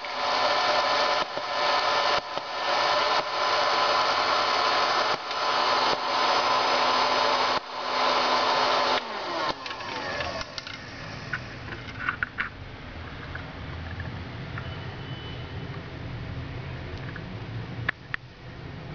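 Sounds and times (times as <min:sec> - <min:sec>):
popcorn maker fan humming: 0:00.0 - 0:14.0.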